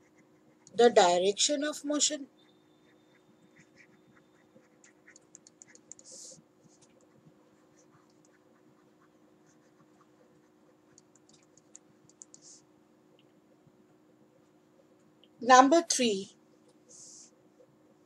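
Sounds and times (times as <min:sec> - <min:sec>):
faint steady hum: 0:00.0 - 0:18.0
stylus ticking on tablet screen: 0:02.3 - 0:12.6.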